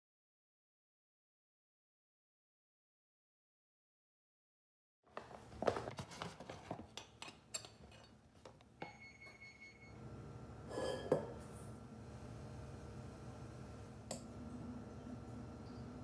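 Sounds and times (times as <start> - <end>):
metal cups clinking against bowl: 10.7 - 11.4.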